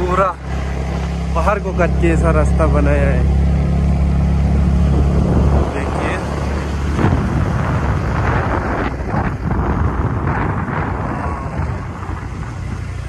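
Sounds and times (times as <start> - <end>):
vehicle road noise: 0.0 - 13.0
wind rushing over microphone: 2.6 - 13.0.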